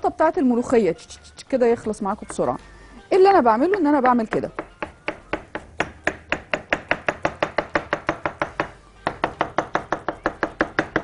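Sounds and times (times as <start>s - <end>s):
knife chopping on wooden board: 3.6s - 11.0s.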